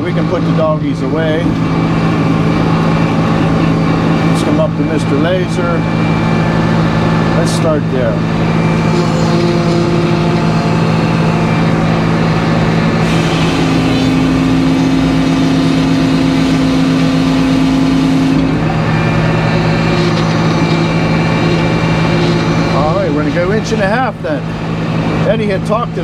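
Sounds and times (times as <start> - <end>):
saw blade running: 2.8 - 24.4
saw cutting log hiss: 13.0 - 18.4.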